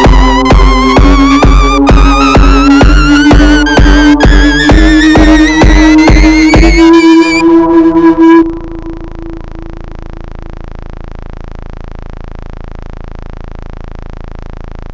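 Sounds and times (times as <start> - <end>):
dubstep music: 0.0 - 9.9
held synth note: 0.0 - 10.1
steady noise: 0.0 - 14.9.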